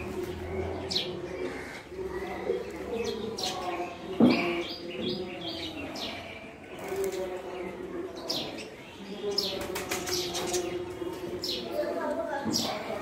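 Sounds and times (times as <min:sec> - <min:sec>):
parakeets chirping and squawking: 0:00.0 - 0:09.5.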